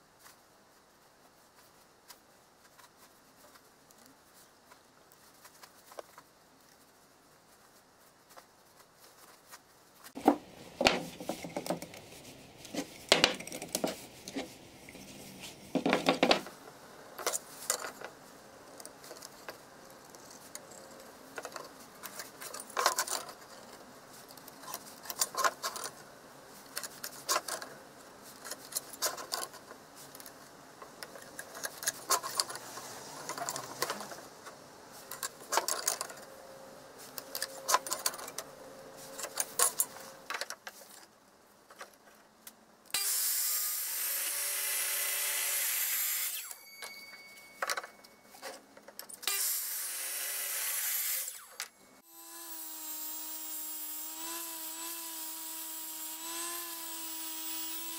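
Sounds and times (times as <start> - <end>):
power tool running: 43.0 - 46.5, 49.3 - 57.9
orbital sander running: 52.1 - 57.9.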